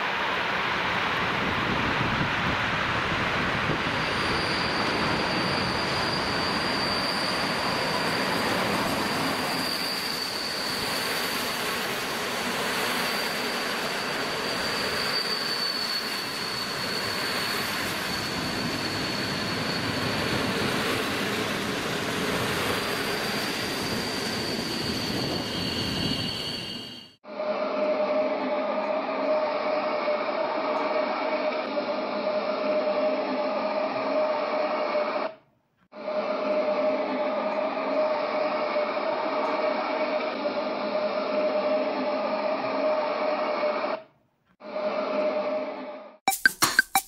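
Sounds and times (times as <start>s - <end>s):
high-pitched whine: 0.0s - 35.1s.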